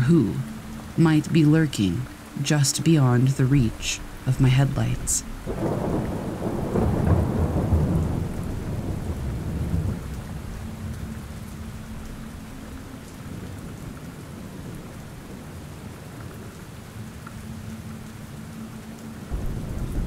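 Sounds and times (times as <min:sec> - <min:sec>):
steady rain: 0:00.0 - 0:20.0
low thunder rumble: 0:03.7 - 0:12.1, 0:19.3 - 0:20.0.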